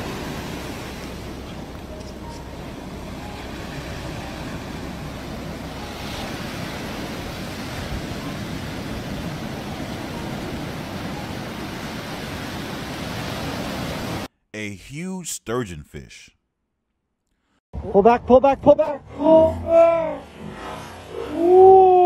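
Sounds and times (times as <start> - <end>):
ocean surf on beach: 0.0 - 14.3.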